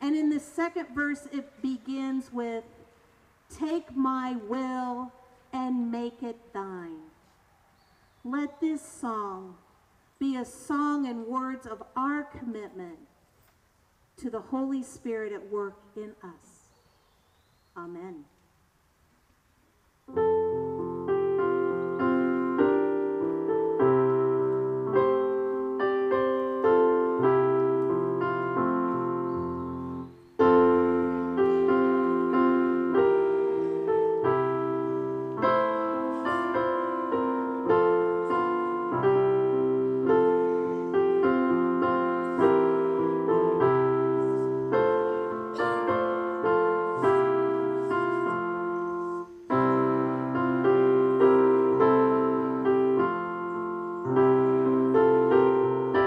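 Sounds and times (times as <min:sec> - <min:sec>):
piano playing a hymn: 0:20.1 - 0:56.0.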